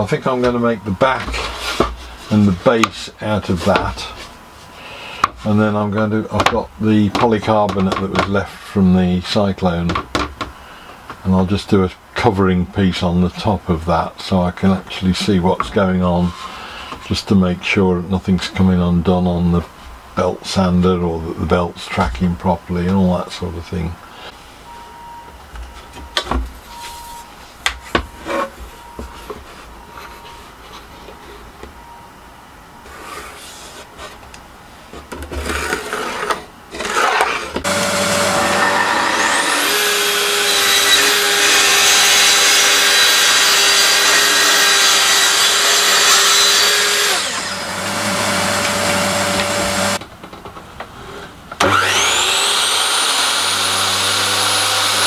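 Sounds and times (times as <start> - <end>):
track saw cutting plywood: 35.3 - 50.0, 51.6 - 55.0
dust extractor running: 37.6 - 50.0, 51.6 - 55.0
mitre saw motor whine: 37.6 - 50.0, 51.6 - 55.0.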